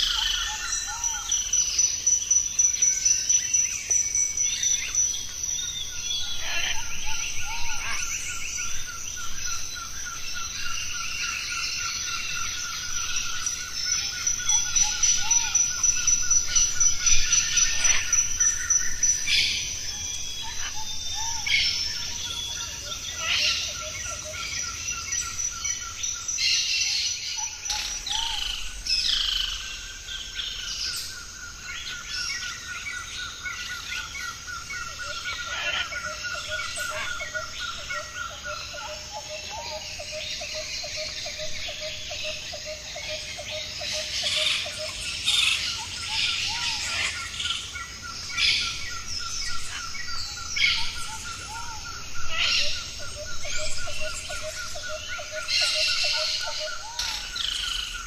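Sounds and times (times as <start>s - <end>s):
birds calling and chirping: 0.0s - 58.0s
high insect drone: 0.0s - 58.0s.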